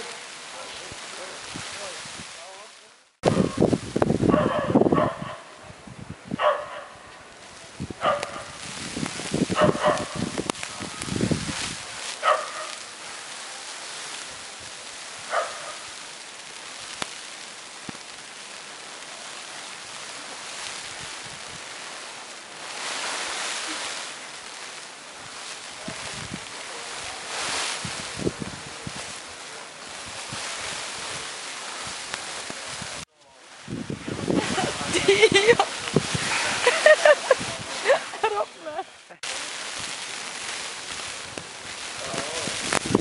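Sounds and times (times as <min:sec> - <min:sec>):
wind hiss on microphone: 0:00.0 - 0:43.0
dog barking: 0:04.3 - 0:05.5, 0:06.4 - 0:07.0, 0:08.0 - 0:08.5, 0:09.6 - 0:10.2, 0:12.2 - 0:12.8, 0:15.3 - 0:15.8.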